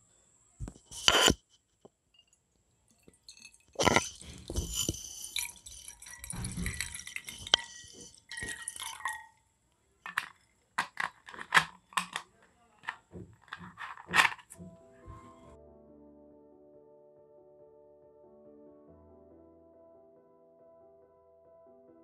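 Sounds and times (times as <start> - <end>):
water splashing into a glass bowl: 3.0 - 9.4
handling noise: 3.1 - 9.4, 10.0 - 15.5.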